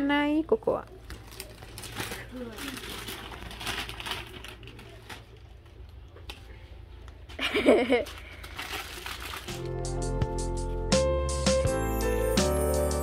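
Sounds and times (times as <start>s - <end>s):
cellophane bags crinkling: 1.0s - 5.9s, 7.6s - 9.8s
music: 9.5s - 13.0s.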